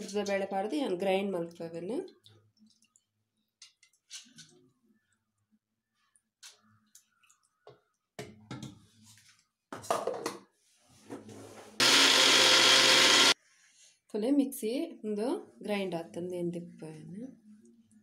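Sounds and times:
electric mixer grinder running: 11.8s - 13.4s.

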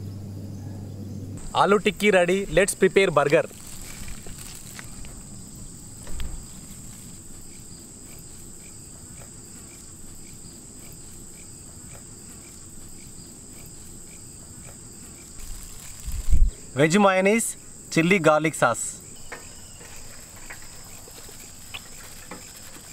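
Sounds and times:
high-pitched insect chorus: 0.0s - 22.9s
insect chirp repeating: 0.0s - 22.9s
soft low thump: 6.0s - 6.9s.

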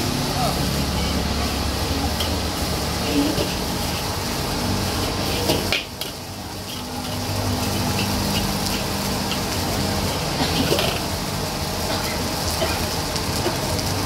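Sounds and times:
metal spatula scraping a wok: 2.1s - 9.7s.

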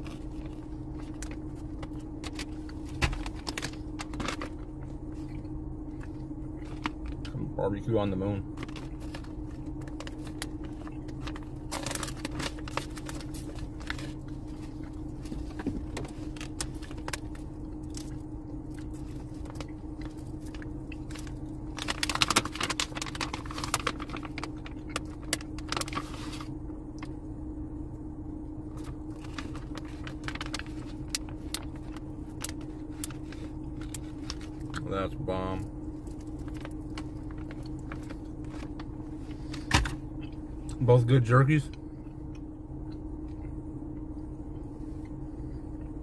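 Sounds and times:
steady low hum: 0.0s - 46.0s
plastic bag crinkling: 8.5s - 26.5s, 28.7s - 34.8s, 36.0s - 40.0s.

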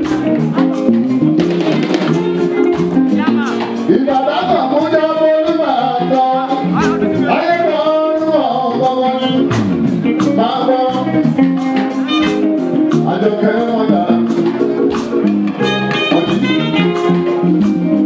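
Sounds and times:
guitars: 0.0s - 18.0s
percussion: 0.0s - 18.0s
man singing into a microphone: 3.8s - 9.6s, 10.2s - 12.2s, 12.9s - 14.7s, 15.9s - 17.9s.

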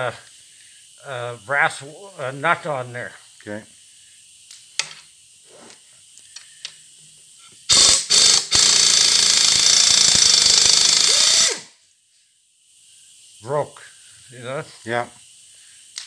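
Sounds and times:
pneumatic impact wrench hammering: 7.7s - 11.8s.

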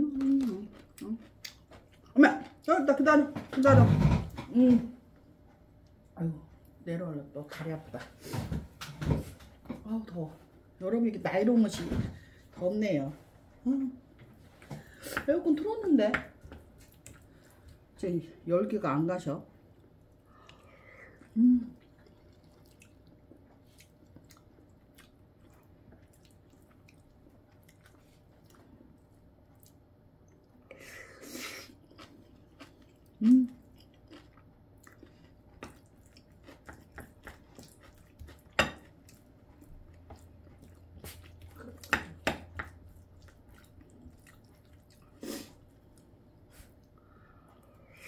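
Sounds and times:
person chewing and crunching: 0.1s - 2.6s, 19.7s - 30.5s, 31.7s - 46.1s.

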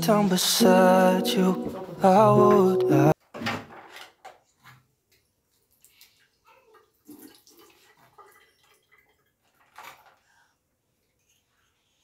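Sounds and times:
water dripping: 5.5s - 9.4s
tap running thin stream: 6.8s - 10.2s.

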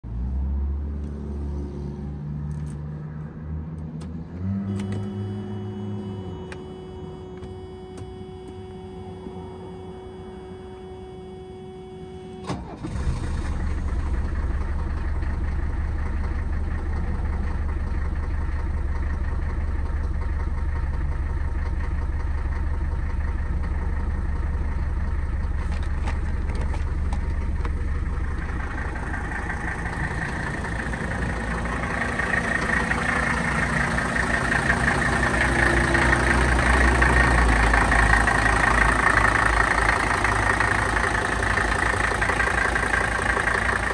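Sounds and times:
diesel engine cranking and idling: 0.0s - 43.9s.

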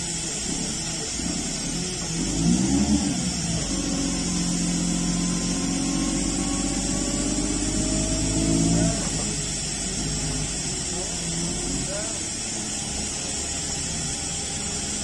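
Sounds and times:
faint rising whine: 0.0s - 15.0s
forklift engine running: 0.0s - 15.0s.

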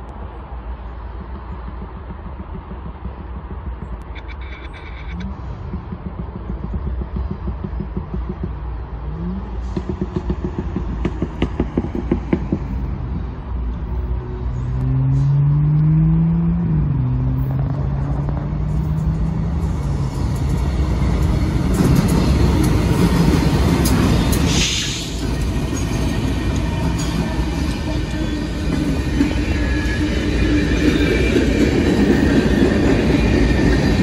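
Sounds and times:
diesel locomotive engines rumbling: 0.0s - 34.0s
train wheels roaring: 0.0s - 34.0s.

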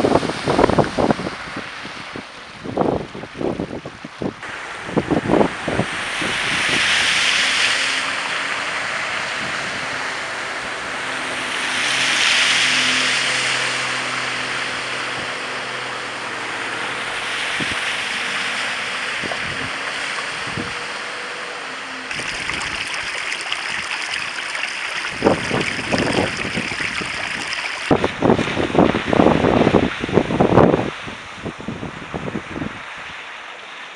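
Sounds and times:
wind buffeting microphone: 0.0s - 7.9s, 19.0s - 21.1s, 22.1s - 33.2s
low engine hum: 0.0s - 33.9s
tyres swishing through floodwater: 0.0s - 33.9s.

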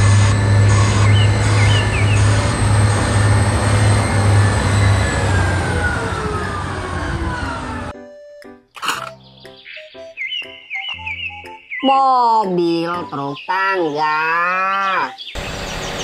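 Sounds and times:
engine whine: 0.0s - 8.0s, 15.4s - 16.0s
dump truck engine drone: 0.0s - 8.3s, 15.4s - 16.0s.

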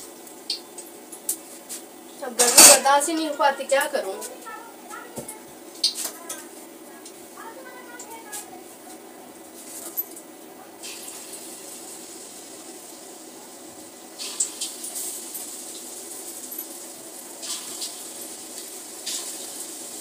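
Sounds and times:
metal utensils clinking: 2.3s - 4.2s
steady hiss: 10.8s - 20.0s.

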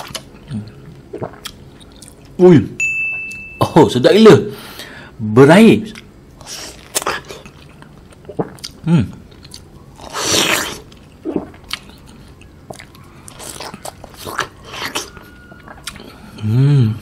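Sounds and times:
biting and chewing peach: 5.9s - 16.3s.

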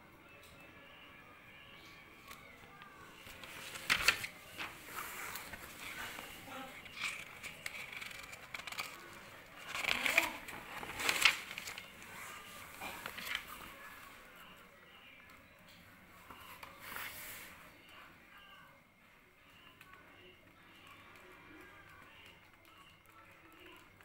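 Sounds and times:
paper and book rustling: 2.2s - 14.6s, 16.2s - 18.1s.

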